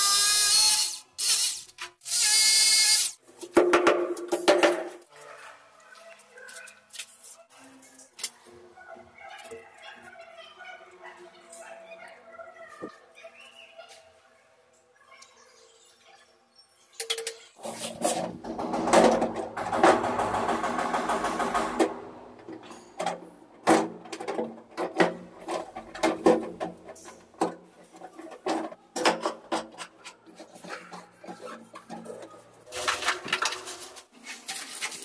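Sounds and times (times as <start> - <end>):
electric drill motor: 2.1 - 3.2.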